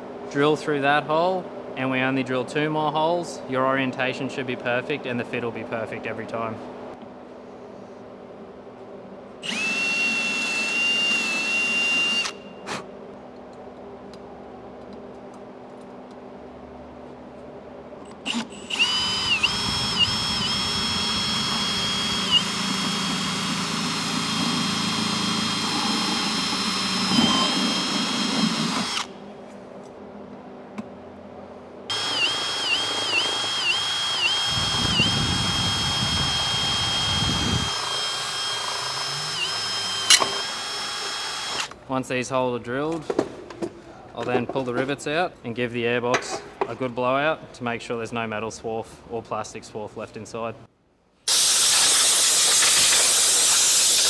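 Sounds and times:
cordless drill drilling plastic: 9.4s - 12.4s, 18.3s - 29.1s, 31.9s - 41.7s.

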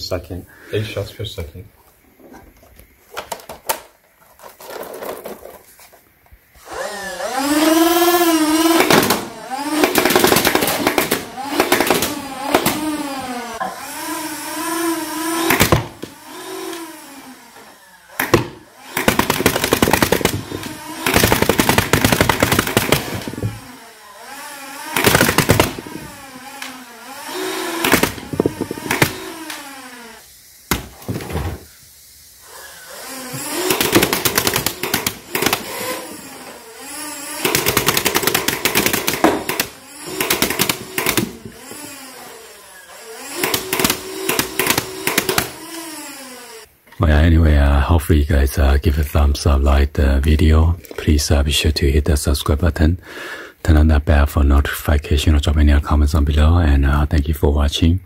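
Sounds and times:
toy blaster motor whining: 6.6s - 46.7s
rapid rattle of shots: 8.6s - 13.0s, 18.2s - 23.8s, 24.8s - 26.2s, 33.1s - 41.6s, 43.1s - 45.7s.

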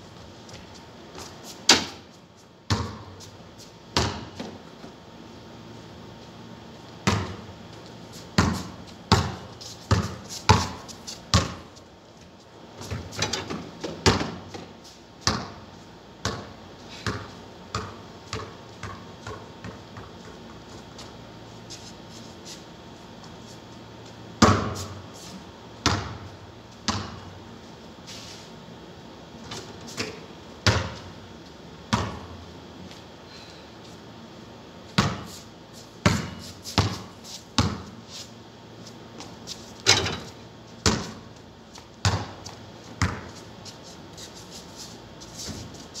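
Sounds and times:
basketball bouncing on concrete: 2.7s - 3.3s, 3.9s - 4.7s, 7.0s - 7.5s, 8.4s - 11.8s, 12.8s - 15.6s, 16.2s - 20.6s, 24.4s - 25.0s, 25.8s - 27.4s, 29.4s - 31.1s, 31.9s - 32.4s, 35.0s - 35.3s, 36.0s - 38.0s, 39.2s - 43.4s.

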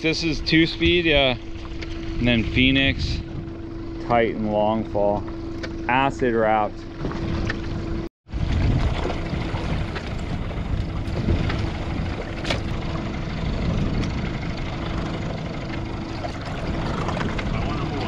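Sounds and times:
outboard motor idling: 0.0s - 18.0s
wind noise on microphone: 8.3s - 14.6s.

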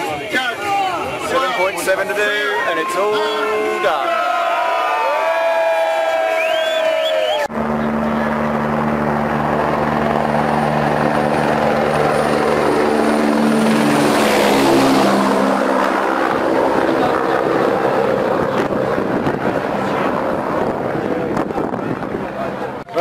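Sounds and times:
broad rushing noise: 0.0s - 23.0s
helicopter flying overhead: 7.4s - 23.0s.

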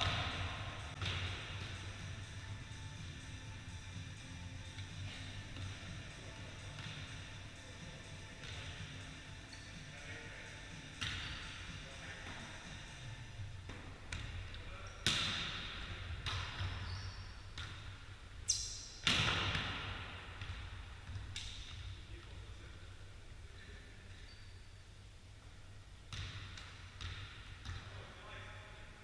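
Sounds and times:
volleyball hits echoing: 0.0s - 1.8s, 19.0s - 21.8s.

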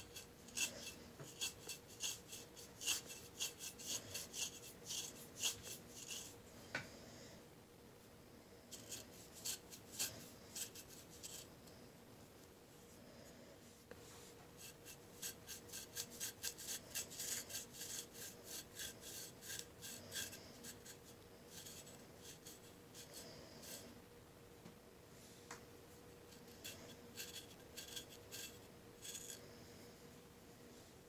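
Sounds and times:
knife scraping skin: 0.0s - 6.3s, 14.6s - 23.8s, 26.3s - 29.4s.

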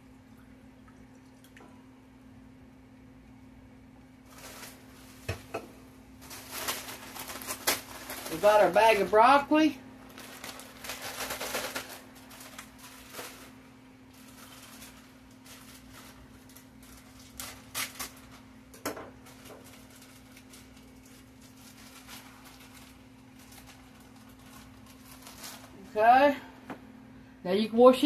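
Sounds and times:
steady low hum: 0.0s - 28.0s
plastic bag crinkling: 4.2s - 5.4s, 6.2s - 26.4s.

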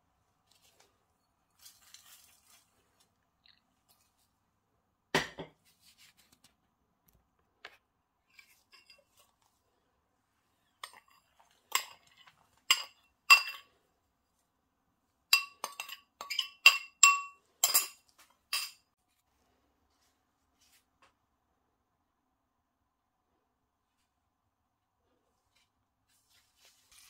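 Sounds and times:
metal spoon clinking ceramic bowl: 10.8s - 13.7s, 15.3s - 18.9s.

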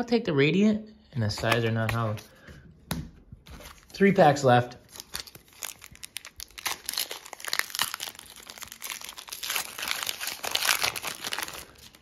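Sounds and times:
foil wrapper crinkling and tearing: 4.8s - 12.0s.

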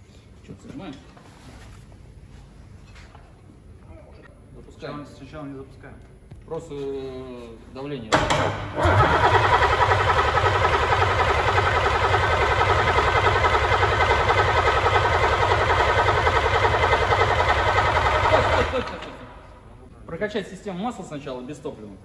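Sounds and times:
diesel engine cranking on starter: 8.2s - 19.3s.

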